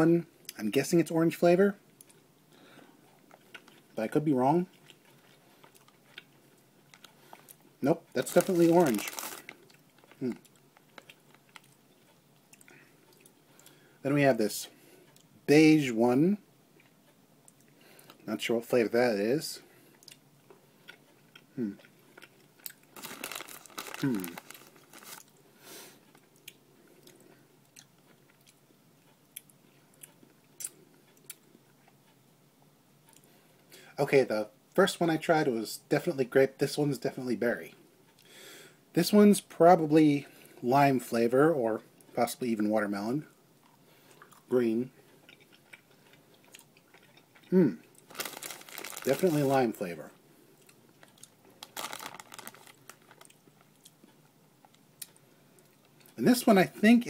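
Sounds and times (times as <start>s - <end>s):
person chewing soft sweet: 1.9s - 4.0s, 4.6s - 14.0s, 14.9s - 15.4s, 16.7s - 18.3s, 19.7s - 32.2s, 33.0s - 33.6s, 43.3s - 56.2s
person chewing with wet mouth clicks: 45.1s - 48.1s.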